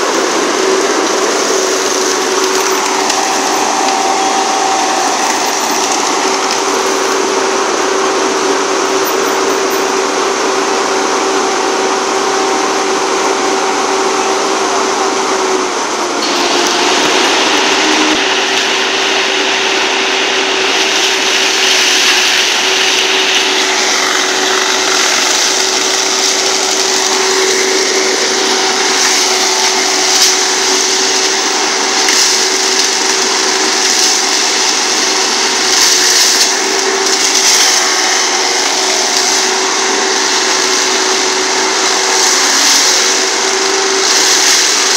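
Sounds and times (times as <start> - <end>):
log dragging through brush: 0.0 - 7.4
excavator engine and hydraulics whine: 0.0 - 44.9
brush cracking: 0.2 - 7.2, 20.7 - 44.9.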